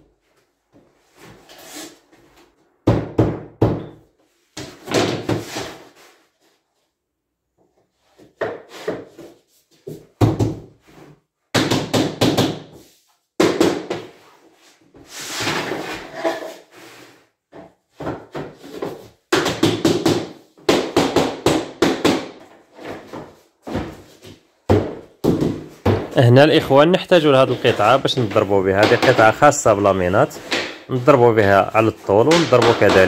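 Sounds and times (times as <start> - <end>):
wooden planks knocking: 27.5 - 29.6, 32.2 - 33.0.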